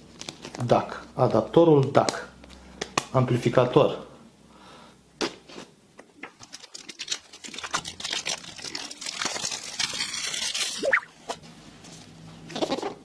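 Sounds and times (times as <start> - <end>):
plastic packaging crinkling: 0.0 - 0.8, 6.2 - 11.4.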